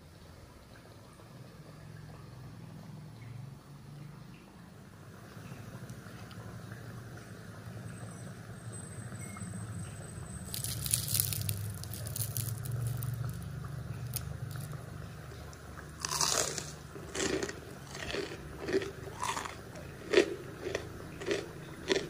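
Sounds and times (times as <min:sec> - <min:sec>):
fritters crackling pulled apart: 0:10.4 - 0:14.8, 0:16.0 - 0:19.6
crunchy chewing: 0:10.4 - 0:22.0.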